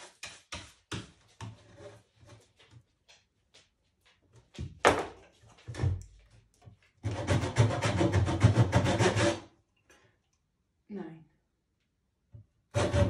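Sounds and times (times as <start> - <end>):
metal scraper rasping across paint: 7.0 - 9.5, 12.7 - 13.0.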